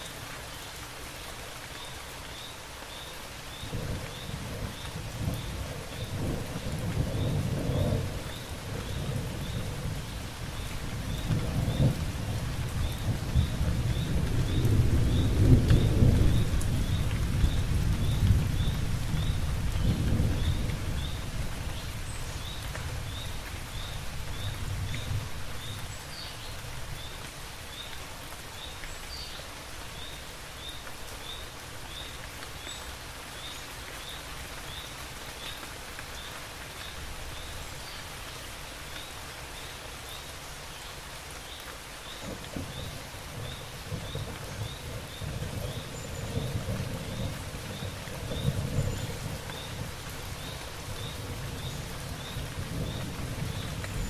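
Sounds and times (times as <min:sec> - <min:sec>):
steady rainfall: 0:00.0 - 0:54.0
rolling thunder: 0:03.7 - 0:21.2, 0:42.2 - 0:54.0.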